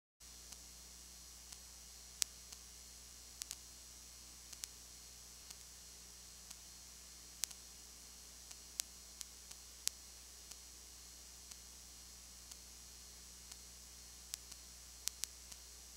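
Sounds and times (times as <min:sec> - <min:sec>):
recording hiss and hum: 0:00.2 - 0:15.9
sharp clicks: 0:03.4 - 0:03.6, 0:04.5 - 0:04.8, 0:05.4 - 0:05.7, 0:07.4 - 0:07.6, 0:14.3 - 0:15.7.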